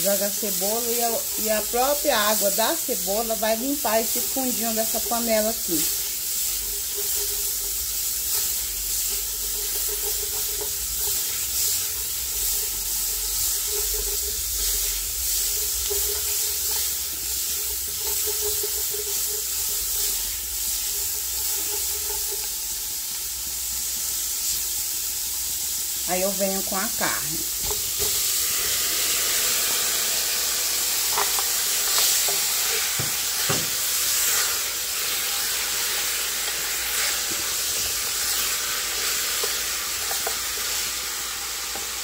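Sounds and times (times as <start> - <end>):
onion sizzling in hot oil: 0.0 - 42.0
spatula stirring: 3.7 - 24.6.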